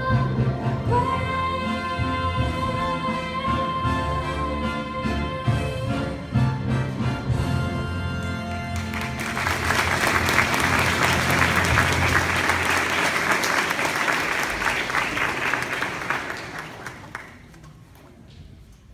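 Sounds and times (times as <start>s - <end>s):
audience clapping: 8.5s - 18.0s.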